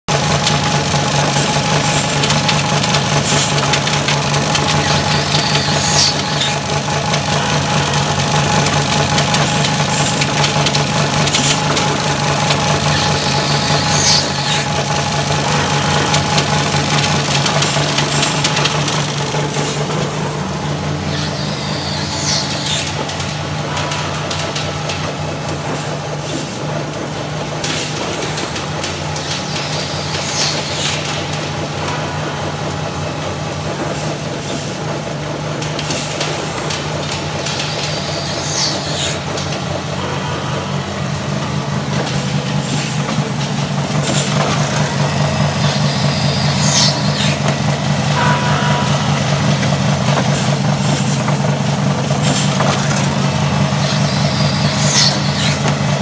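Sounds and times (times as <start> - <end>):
machine humming and whining: 0.1 - 56.0
high squeal: 4.8 - 6.6, 21.0 - 23.0, 45.5 - 47.5, 48.1 - 50.6.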